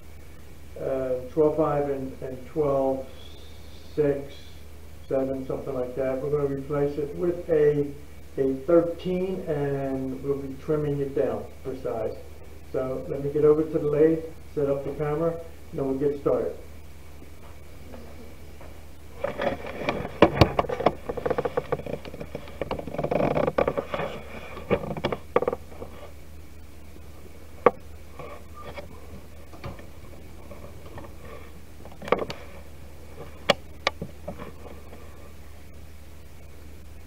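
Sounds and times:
steady low hum: 0.0 - 37.0
sharp knocks and clicks: 19.2 - 25.9, 27.6 - 28.9, 33.2 - 34.5
camera handling rustling and bumps: 19.2 - 26.2, 27.6 - 35.0.

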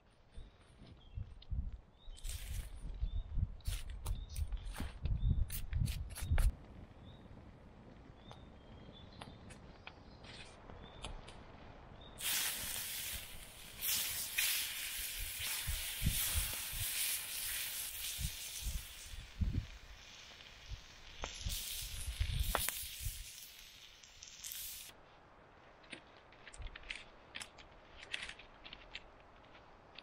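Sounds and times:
steak sizzling on hot stone: 12.2 - 24.9.

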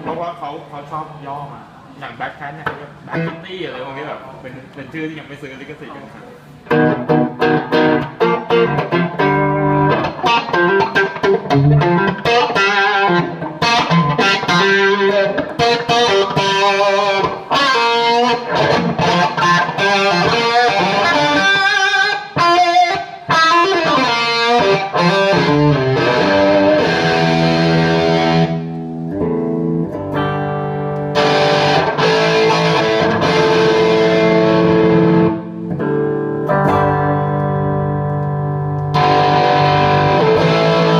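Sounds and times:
overdriven electric guitar: 6.6 - 40.9.

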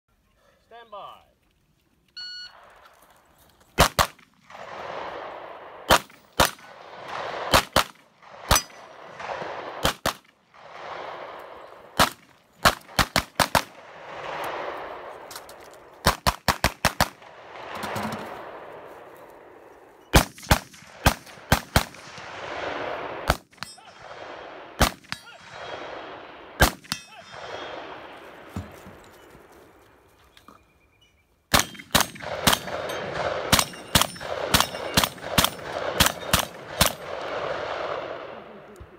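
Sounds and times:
gunshot echo rolling back: 3.8 - 15.4
gunshots: 3.8 - 15.4, 16.0 - 18.9, 20.1 - 28.5, 31.5 - 38.7.

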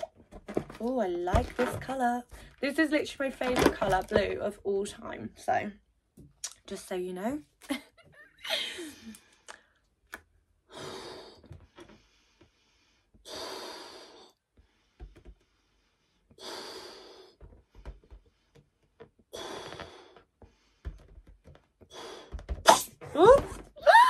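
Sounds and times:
person blowing up balloon: 19.3 - 20.2, 21.9 - 24.0.

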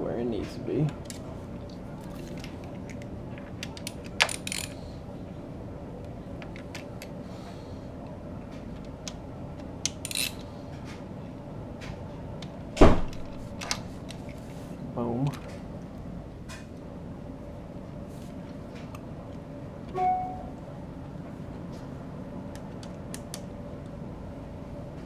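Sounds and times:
small clicks and taps of parts: 22.5 - 23.5.

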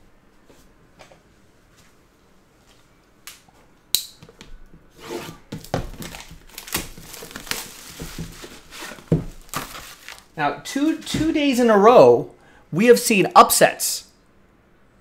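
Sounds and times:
plastic shrink-wrap crinkling: 5.7 - 11.1.

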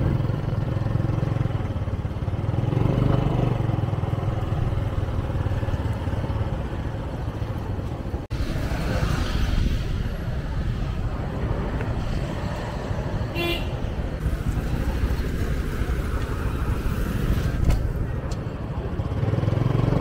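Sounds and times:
road traffic rumble: 0.0 - 20.0
car horn toot: 13.3 - 13.8.

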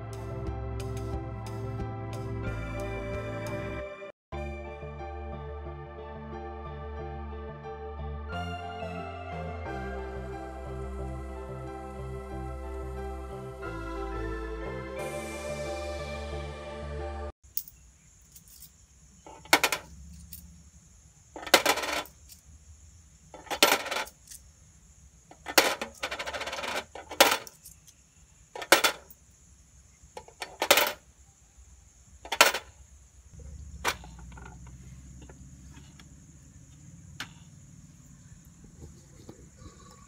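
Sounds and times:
coins clinking into money box: 19.3 - 20.4, 21.4 - 22.4, 23.4 - 24.4, 25.4 - 28.0, 28.6 - 29.2, 30.4 - 31.0, 32.3 - 32.7
coins rattling inside box: 21.4 - 22.4, 23.4 - 24.4, 25.4 - 27.9.

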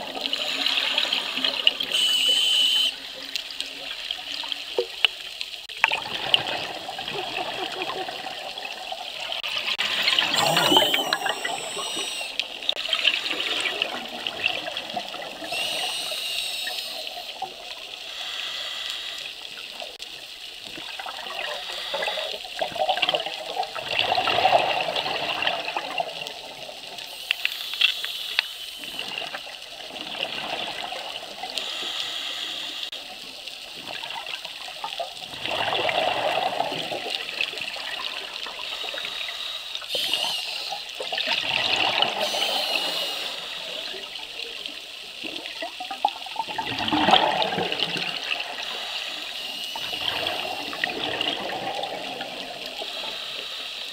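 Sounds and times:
scuba regulator bubbling underwater: 5.8 - 17.6, 46.3 - 48.8, 49.4 - 52.9.

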